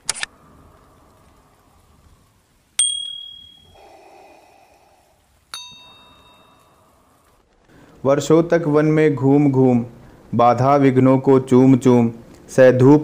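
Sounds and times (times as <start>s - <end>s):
bell-like ding: 2.8s - 3.8s, 5.6s - 6.8s.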